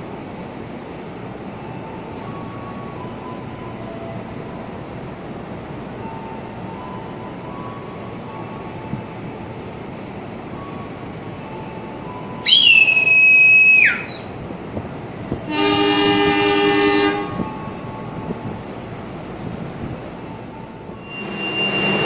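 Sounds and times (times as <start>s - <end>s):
shrill whistle blast: 12.4s - 14.3s, 21.0s - 22.0s
locomotive air horn chord: 15.4s - 18.2s, 20.9s - 22.0s.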